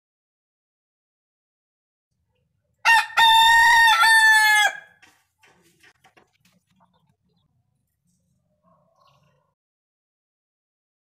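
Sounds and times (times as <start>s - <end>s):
rooster crowing: 2.8s - 5.0s.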